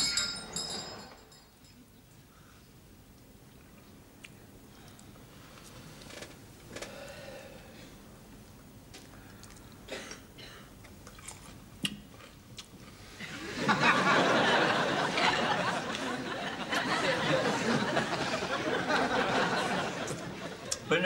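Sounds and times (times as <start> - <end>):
cutlery and glass clinking: 0.0 - 1.8
studio audience laughing: 13.3 - 20.8.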